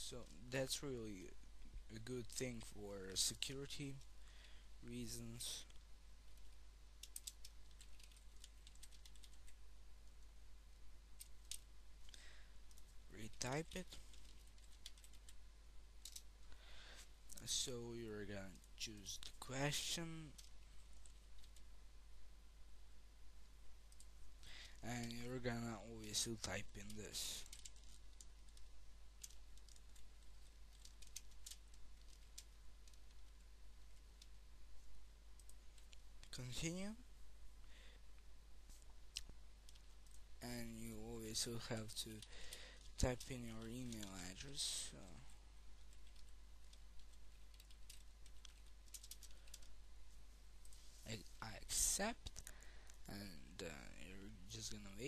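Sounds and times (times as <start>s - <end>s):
faint keyboard typing: 0.0s - 10.3s, 11.2s - 15.4s, 16.0s - 21.7s, 23.9s - 37.0s, 38.7s - 49.8s
keyboard typing: 7.0s - 9.6s, 14.0s - 15.4s, 26.8s - 30.0s, 30.7s - 33.4s, 45.9s - 49.7s.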